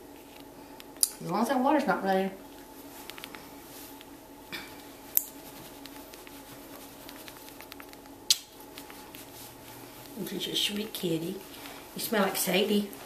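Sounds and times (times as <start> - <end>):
towel rustling: 2.4 - 7.6, 8.6 - 13.0
sharp clicks: 7.1 - 9.0.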